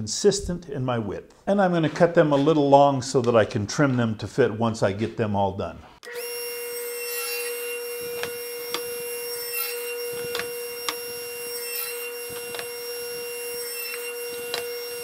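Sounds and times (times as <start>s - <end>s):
table saw whining: 6.0s - 15.0s.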